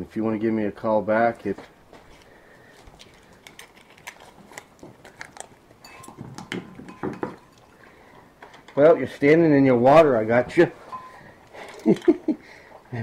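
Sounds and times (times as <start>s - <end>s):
puppy eating crunches: 2.6s - 6.9s.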